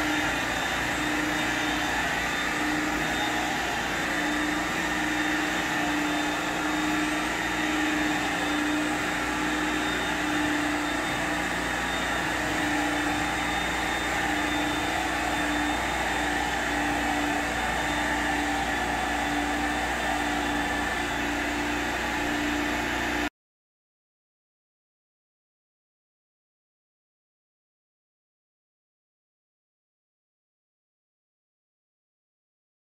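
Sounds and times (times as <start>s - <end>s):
carpet extractor vacuum running: 0.0s - 23.3s.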